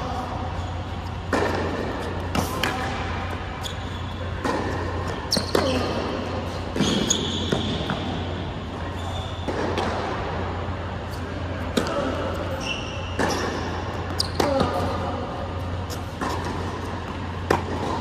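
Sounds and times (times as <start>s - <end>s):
steady low hum: 0.0s - 18.0s
rackets striking tennis ball: 0.4s - 8.5s, 9.3s - 18.0s
tennis ball bouncing: 1.0s - 3.5s, 4.2s - 8.2s, 15.7s - 18.0s.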